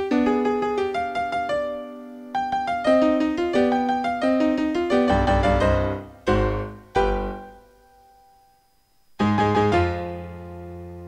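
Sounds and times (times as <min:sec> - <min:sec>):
solo piano music: 0:00.0 - 0:11.0.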